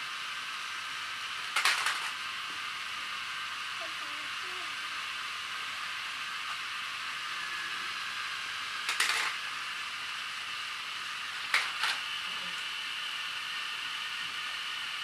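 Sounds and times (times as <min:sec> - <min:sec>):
high whir of toy train motors: 0:00.0 - 0:15.0
plastic toy trains crashing: 0:01.5 - 0:02.2, 0:08.8 - 0:09.5, 0:11.4 - 0:12.1.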